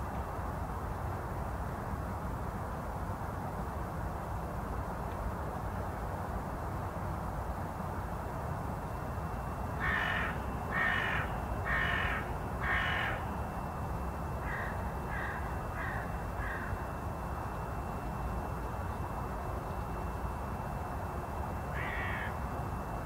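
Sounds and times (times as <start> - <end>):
crow cawing: 9.8 - 13.3, 14.4 - 16.8, 21.7 - 22.4.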